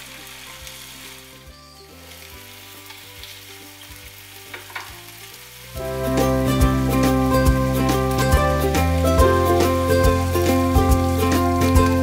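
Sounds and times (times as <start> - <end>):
meat sizzling in a grill pan: 0.0 - 12.0
loud music: 5.8 - 12.0.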